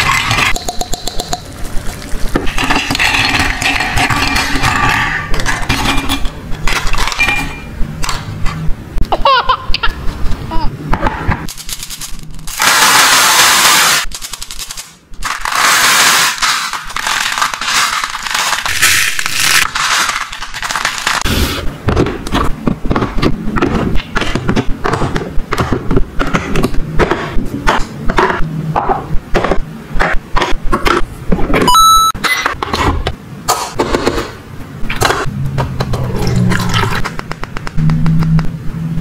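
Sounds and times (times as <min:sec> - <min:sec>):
plastic beads pouring rattle: 0:11.5 - 0:21.2
short high tone: 0:31.7 - 0:32.2.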